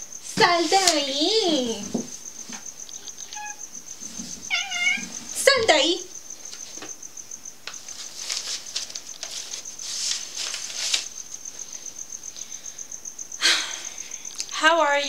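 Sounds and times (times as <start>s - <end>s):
soft rustling and scuffing: 0.3s - 2.7s, 4.0s - 5.8s, 7.8s - 11.8s.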